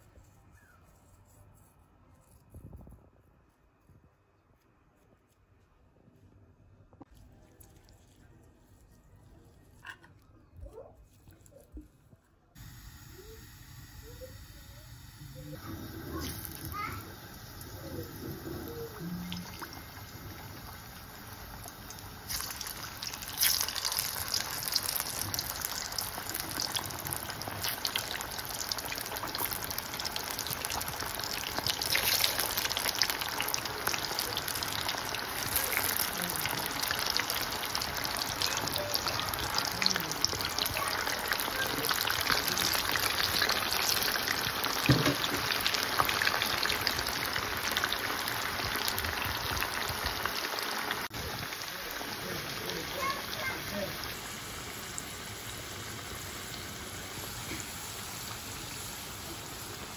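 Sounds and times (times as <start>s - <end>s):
chips deep-frying in oil: 12.6s - 59.9s.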